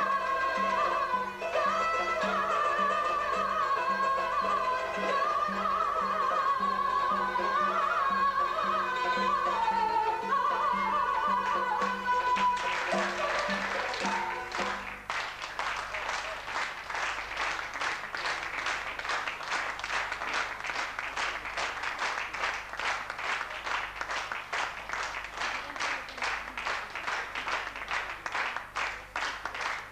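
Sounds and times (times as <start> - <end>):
audience clapping in rhythm: 0.0 - 3.3, 10.7 - 29.9.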